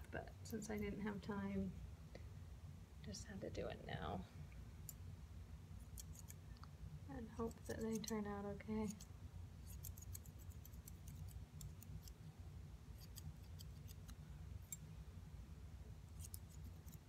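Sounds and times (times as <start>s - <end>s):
low room rumble: 0.0s - 17.0s
scissors snipping hair: 5.8s - 6.4s, 7.4s - 8.2s, 8.8s - 12.2s, 13.0s - 14.8s, 16.1s - 17.0s.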